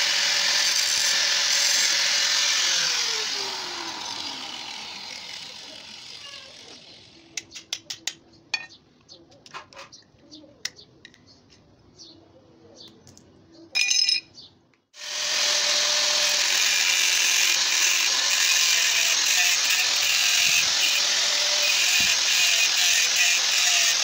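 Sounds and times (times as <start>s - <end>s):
angle grinder cutting steel: 0.0s - 7.3s, 15.0s - 24.0s.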